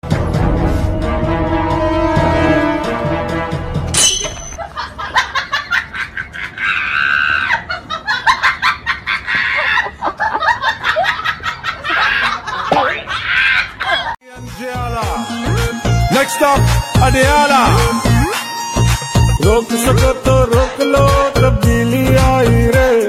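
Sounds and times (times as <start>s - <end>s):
music: 0.0s - 4.0s, 14.2s - 23.0s
high-pitched laughing and squealing: 5.2s - 14.2s.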